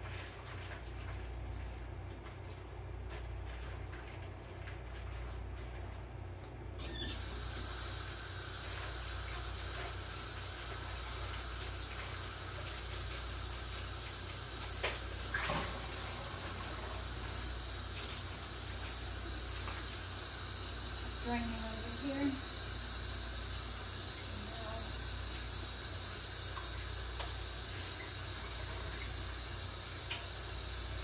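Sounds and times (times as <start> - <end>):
tap water running into sink: 6.8 - 31.0.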